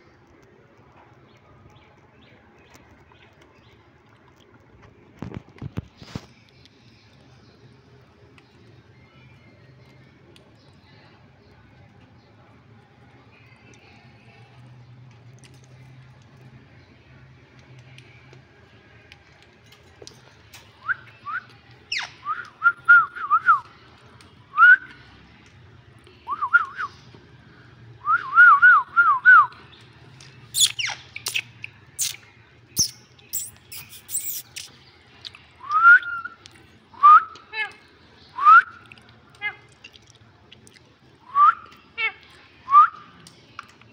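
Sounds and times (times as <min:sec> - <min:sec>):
parakeets screeching: 0:21.9 - 0:22.2, 0:30.5 - 0:32.2, 0:32.8 - 0:34.7.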